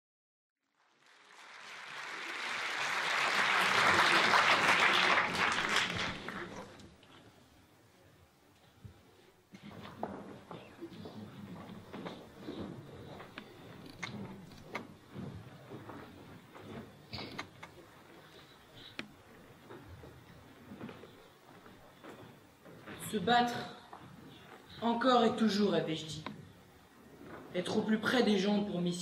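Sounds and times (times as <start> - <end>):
audience applauding: 0.7 - 6.9
faint room noise: 0.7 - 29.0.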